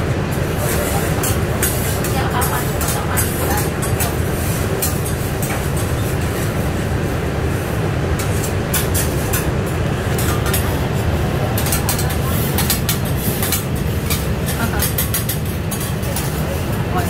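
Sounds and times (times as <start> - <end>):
hotplate rumble and hiss: 0.0 - 17.0
metal spatulas scraping griddle: 0.6 - 6.6, 8.2 - 9.5, 11.6 - 16.8.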